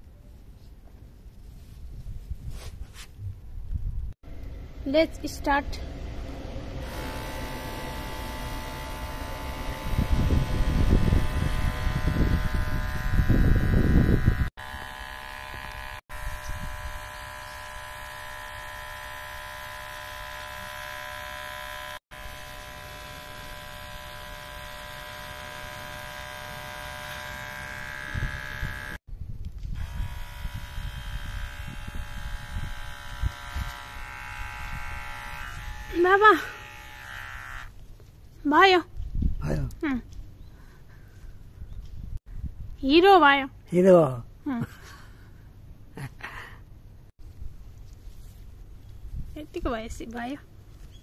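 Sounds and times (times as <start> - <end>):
low rumbling: 3.2 - 14.5
electric hair clippers buzzing: 6.8 - 29.0, 29.7 - 37.8.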